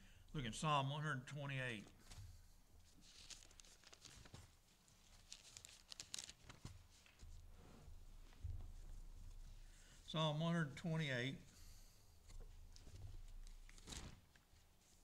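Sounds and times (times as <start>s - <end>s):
thin pages turning: 2.9s - 7.3s, 12.8s - 14.4s.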